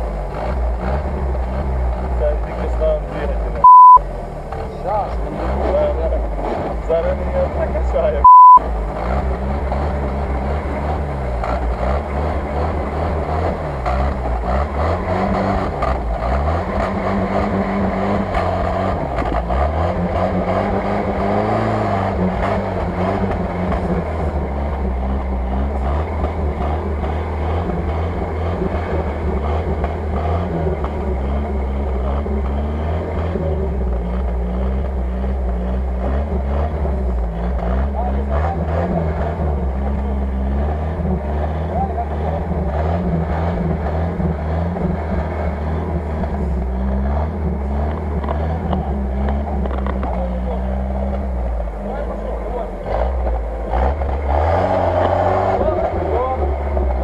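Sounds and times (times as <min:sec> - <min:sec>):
engine running under load: 0:00.0 - 0:57.0
short loud beep: 0:03.6 - 0:04.0, 0:08.2 - 0:08.6.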